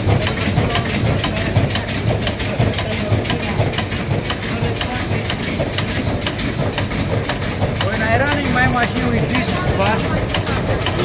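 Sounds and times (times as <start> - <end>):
machine humming and clacking: 0.0 - 11.0.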